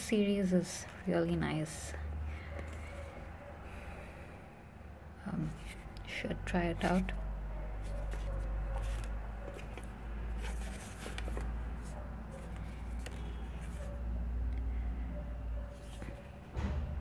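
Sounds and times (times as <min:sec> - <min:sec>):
paper cards rustling and sliding: 0:02.4 - 0:04.1, 0:05.4 - 0:14.2, 0:15.6 - 0:16.4.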